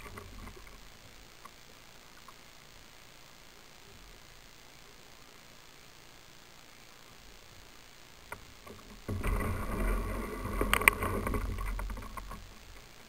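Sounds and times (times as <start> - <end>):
kayak splashing and scraping: 8.7 - 12.8.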